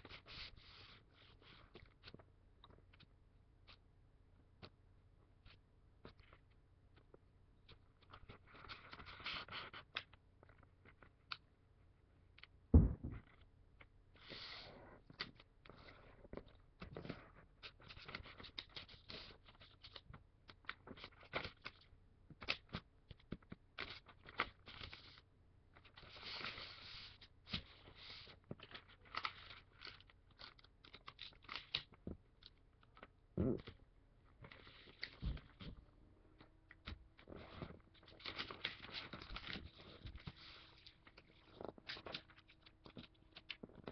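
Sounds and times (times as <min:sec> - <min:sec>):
loud thump: 0:12.8 - 0:13.3
soft knocks: 0:12.8 - 0:13.3
paper rustling and scraping: 0:25.9 - 0:31.9, 0:36.8 - 0:43.9.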